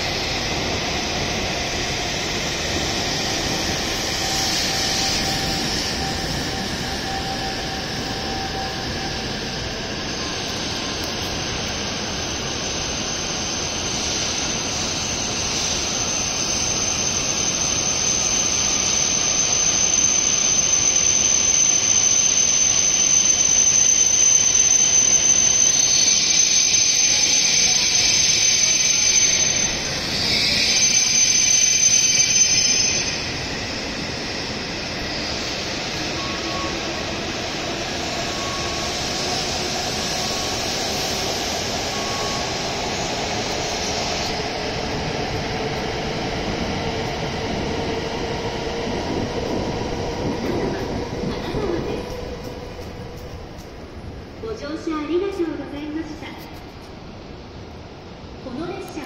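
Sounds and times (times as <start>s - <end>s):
high squeal of train brakes: 0.0s - 58.0s
train rushing and rolling: 0.0s - 59.0s
steady hum: 27.1s - 57.0s.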